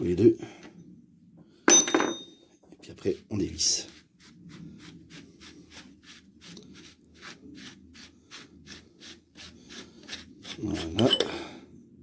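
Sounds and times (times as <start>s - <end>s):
cap unscrewing scraping rasp: 9.7s - 11.4s.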